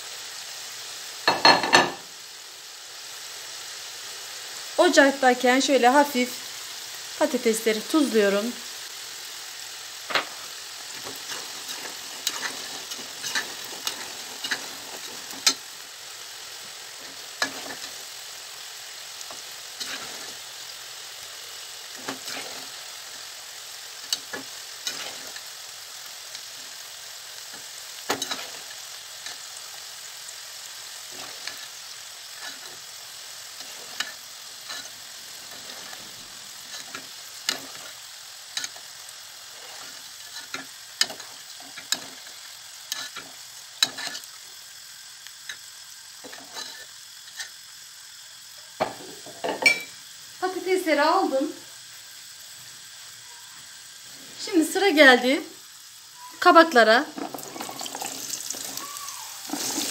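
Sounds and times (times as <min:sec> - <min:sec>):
oil sizzling: 0:00.0 - 0:59.9
oil popping: 0:57.2 - 0:59.9.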